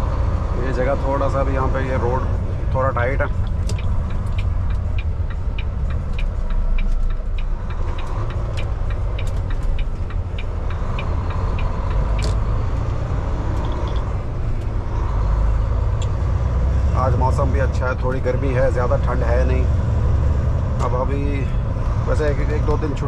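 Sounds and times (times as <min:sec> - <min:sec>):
diesel truck engine rumble: 0:00.0 - 0:23.0
turn signal relay clicking: 0:03.2 - 0:12.5.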